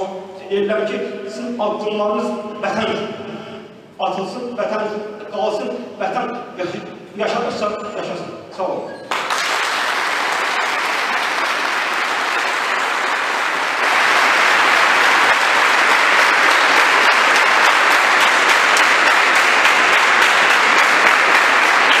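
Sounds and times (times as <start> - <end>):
audience applauding: 9.1 - 22.0.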